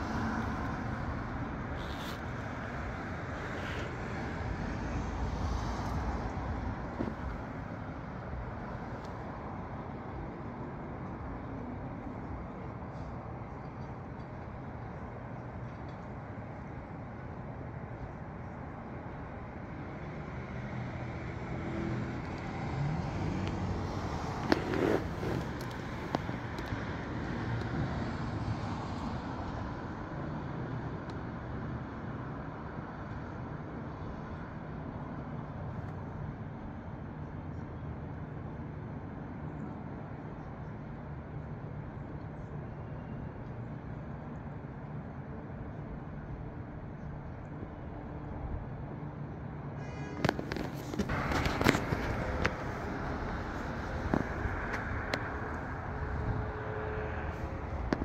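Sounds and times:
distant road traffic: 0:00.0 - 0:58.0
wind buffeting microphone: 0:50.2 - 0:58.0.

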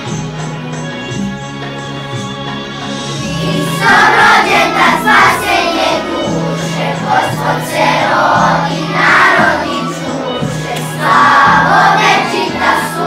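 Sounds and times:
instrumental accompaniment: 0:00.0 - 0:13.0
children's choir singing: 0:03.0 - 0:13.0.

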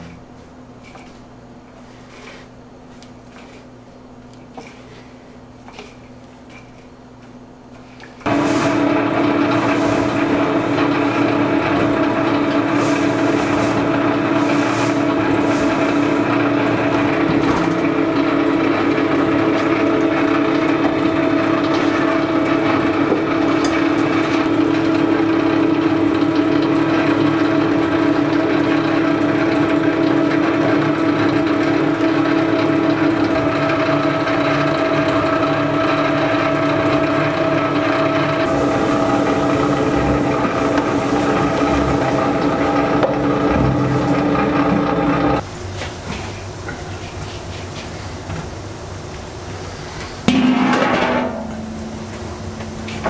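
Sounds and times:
electric mill motor humming: 0:08.2 - 0:45.5.

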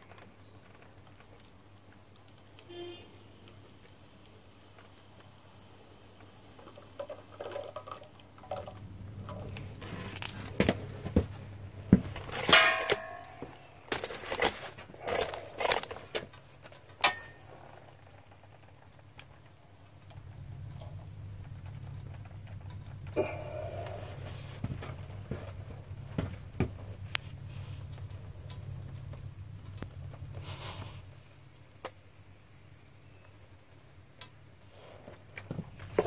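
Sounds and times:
low steady hum: 0:00.0 - 0:36.0
metal tools clanking on concrete: 0:12.2 - 0:16.2, 0:17.0 - 0:17.5
ringing metallic clang: 0:12.5 - 0:13.5.

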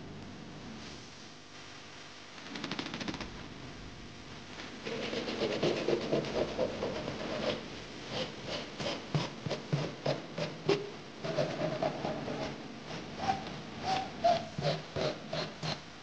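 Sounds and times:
sanding block rubbing wood: 0:04.9 - 0:15.8.

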